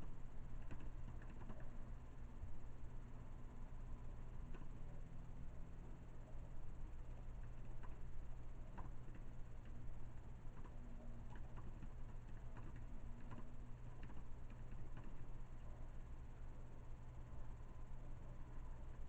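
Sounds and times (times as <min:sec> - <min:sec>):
low steady hum: 0:00.0 - 0:19.0
faint light clicks: 0:04.5 - 0:04.9.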